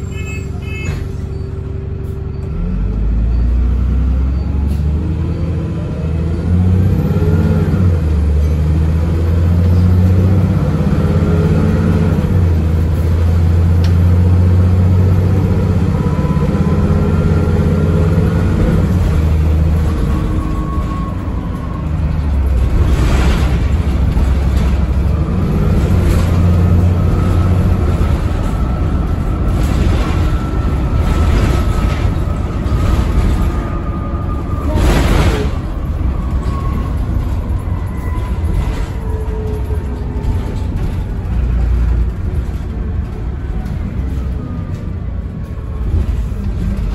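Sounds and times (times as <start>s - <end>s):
bus diesel engine: 0.0s - 46.9s
bus body clattering: 18.5s - 46.9s.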